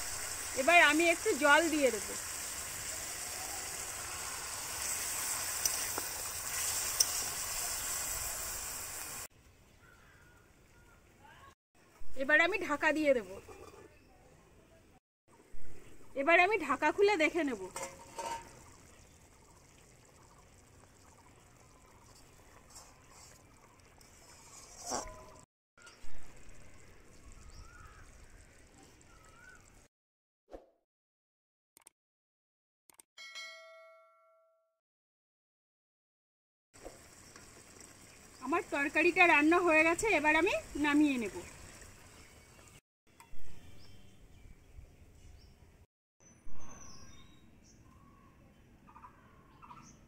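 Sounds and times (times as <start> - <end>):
food sizzling in a pan: 0.0 - 9.3, 36.8 - 42.8
ladle scraping a pot: 13.4 - 14.0, 17.7 - 18.7, 22.0 - 26.0
water being poured: 17.6 - 29.9, 36.8 - 42.8
ladle stirring liquid: 17.7 - 25.4.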